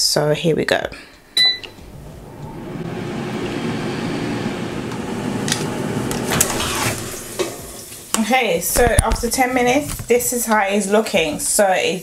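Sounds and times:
fan whirring: 1.2s - 11.4s
touch panel beep: 1.4s - 1.8s.

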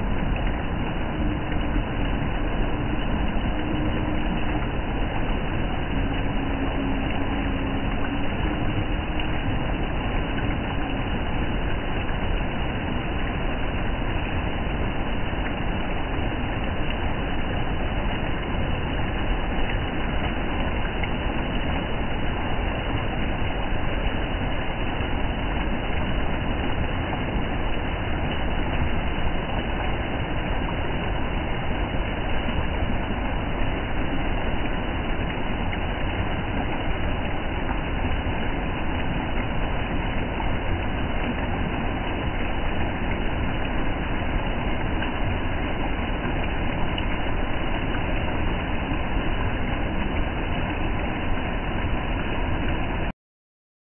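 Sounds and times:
waterfall rushing over rocks: 0.0s - 53.1s.

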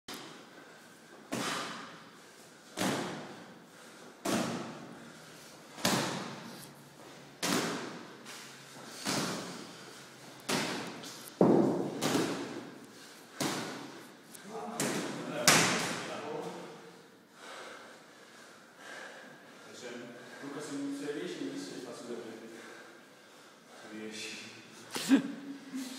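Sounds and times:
sandbag thudding on shoulders: 1.3s - 5.0s, 7.4s - 14.0s.

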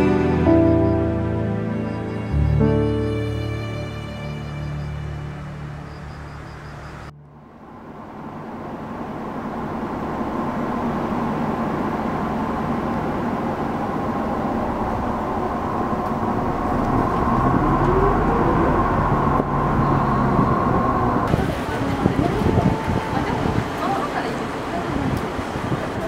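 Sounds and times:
music: 0.0s - 6.9s
bus engine: 0.0s - 26.0s
road noise: 0.0s - 26.0s.

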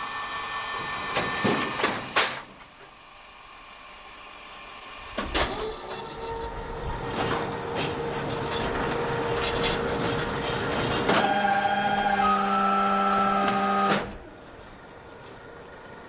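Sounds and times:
machine whine: 2.9s - 15.4s
machine starting clunk: 5.1s - 14.2s.

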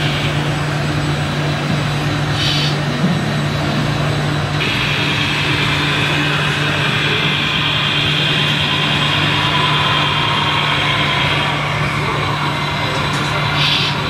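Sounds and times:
high motor whine: 0.0s - 14.0s
model truck motors droning: 0.0s - 14.0s.

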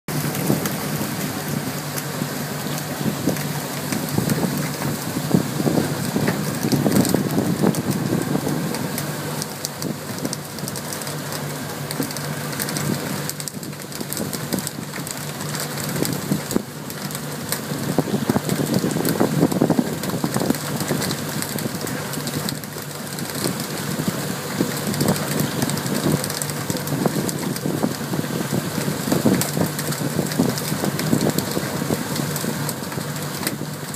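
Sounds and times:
boat engine humming: 0.0s - 33.9s
water spray splashing: 0.1s - 33.9s.

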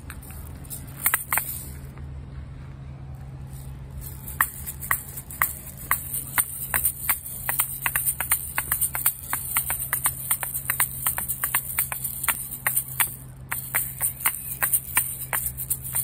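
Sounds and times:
shell rattle clacking: 0.0s - 1.8s, 4.0s - 16.0s.

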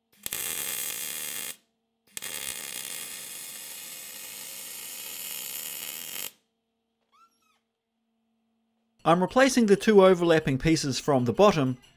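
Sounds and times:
welding arc crackling: 0.1s - 6.4s.

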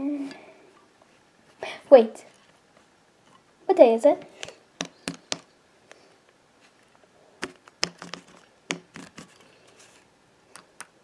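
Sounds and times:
plastic figure tapping on surface: 4.8s - 5.5s.

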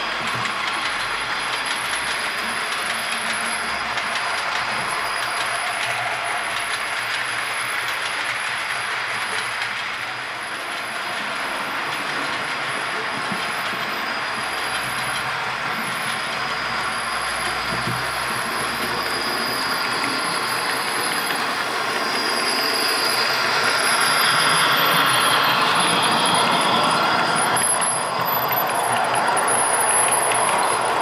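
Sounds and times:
model steam locomotive sound: 0.0s - 31.0s
wheels rolling on track: 0.0s - 31.0s.

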